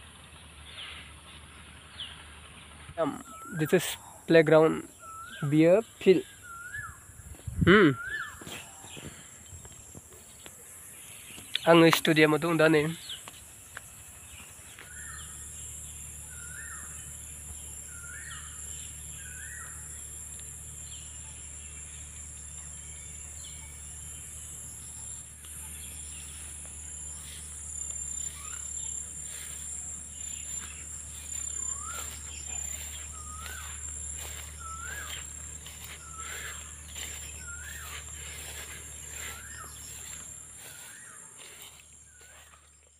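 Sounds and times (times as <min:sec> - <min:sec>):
high-pitched insect chorus: 0:03.0 - 0:42.9
footsteps rustling through grass: 0:06.4 - 0:15.3, 0:25.2 - 0:42.9
bird short rising call: 0:07.6 - 0:09.4, 0:27.1 - 0:41.3.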